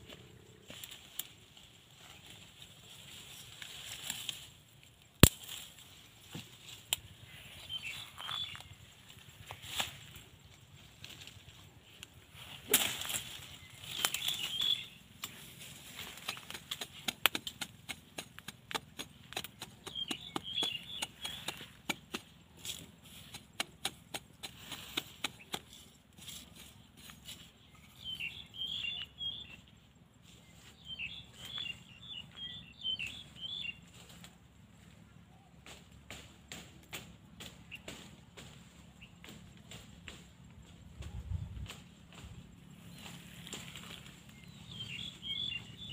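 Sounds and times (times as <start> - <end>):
small birds chirping: 5.4 - 45.9
machete scraping dry dirt: 12.5 - 28.3.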